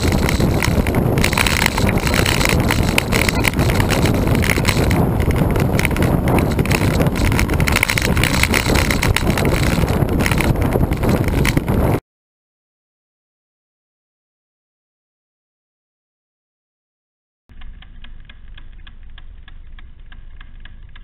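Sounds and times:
bike rolling noise: 0.0 - 12.0, 17.5 - 21.0
wind rushing on microphone: 0.0 - 12.0.

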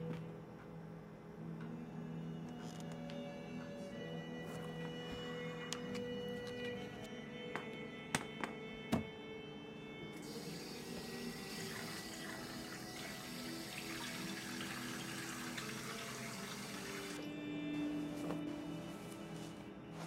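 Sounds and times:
man washing his face: 10.2 - 17.2.

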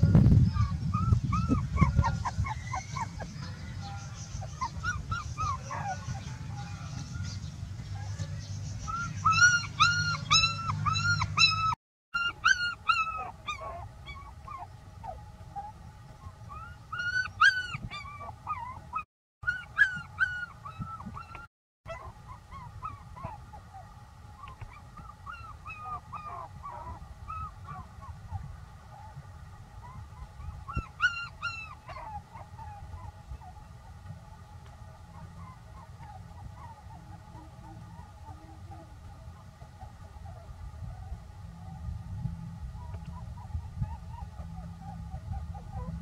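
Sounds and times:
puppy crying: 0.6 - 6.4, 8.9 - 15.7, 16.5 - 23.4, 24.4 - 27.9, 29.8 - 33.6, 42.8 - 46.0.

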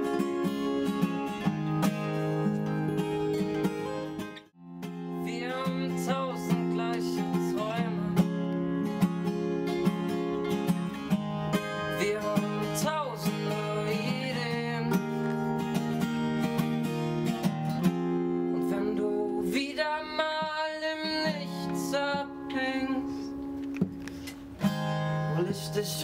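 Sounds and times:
acoustic guitar strumming: 0.0 - 26.0
man singing: 5.1 - 8.8, 11.6 - 15.3, 18.3 - 23.4, 25.2 - 26.0.

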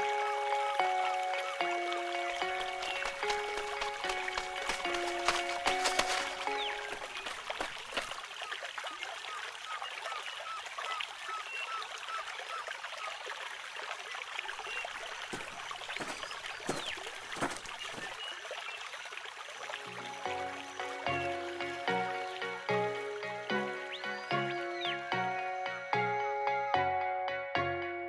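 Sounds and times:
stream water flowing: 0.0 - 25.6
water splashes: 0.8 - 19.9.

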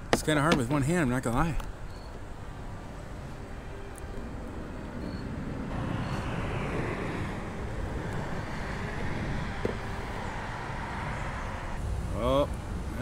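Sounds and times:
vehicle passing by: 4.7 - 13.0.

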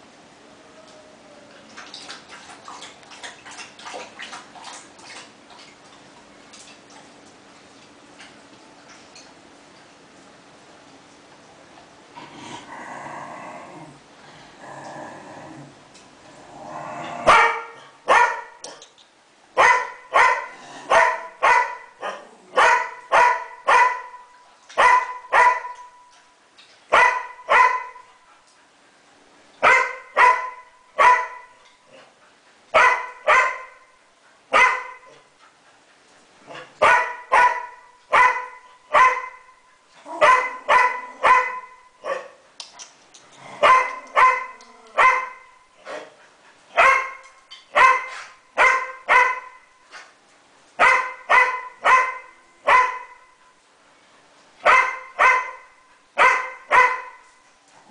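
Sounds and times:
dog barking: 17.3 - 18.6, 19.6 - 24.2, 24.8 - 25.9, 26.9 - 28.1, 29.6 - 31.5, 32.8 - 33.8, 34.5 - 35.1, 36.8 - 39.4, 40.2 - 42.4, 43.6 - 46.0, 46.8 - 49.6, 50.8 - 53.2, 54.6 - 57.2.

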